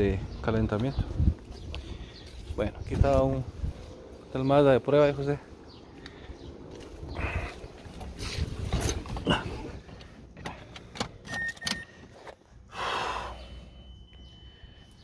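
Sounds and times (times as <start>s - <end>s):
short beeps: 11.3s - 12.0s, 13.6s - 15.0s.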